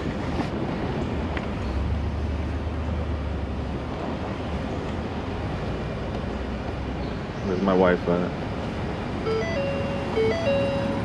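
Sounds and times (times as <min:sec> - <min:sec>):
pickup truck engine hum: 0:08.4 - 0:11.0.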